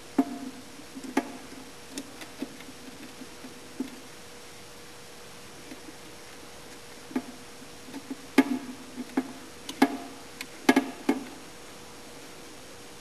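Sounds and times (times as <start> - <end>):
sharp clicks and knocks on switch: 7.9 - 11.4.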